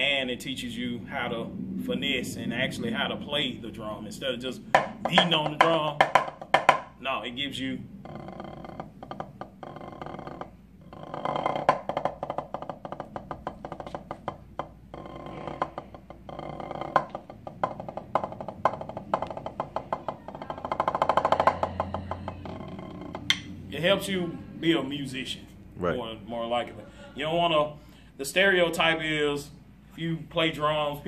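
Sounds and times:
drumsticks on a practice pad: 0:04.7 - 0:07.0, 0:11.1 - 0:23.6.

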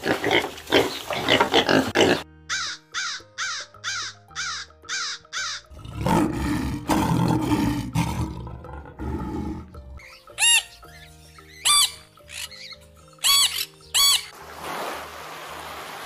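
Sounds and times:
background music with held notes: 0:00.0 - 0:16.0
lion roaring: 0:05.7 - 0:10.0
parrot calls: 0:10.0 - 0:10.8, 0:11.6 - 0:14.3.

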